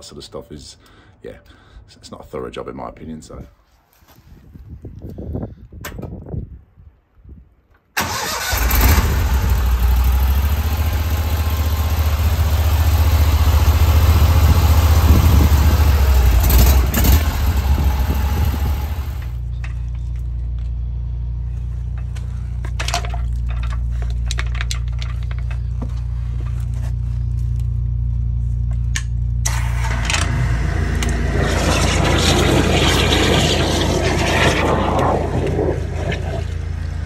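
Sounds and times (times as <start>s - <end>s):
petrol engine running: 8.0s - 19.5s, 29.4s - 37.0s.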